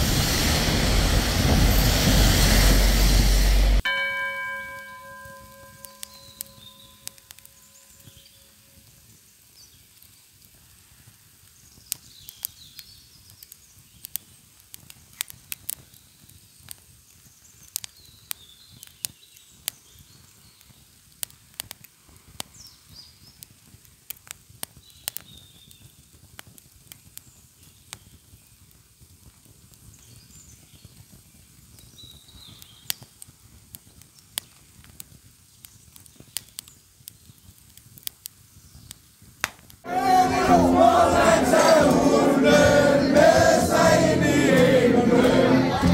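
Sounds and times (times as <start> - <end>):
faint high chirping calls: 5.2 - 9.8
wood fire crackling and popping: 5.7 - 39.9.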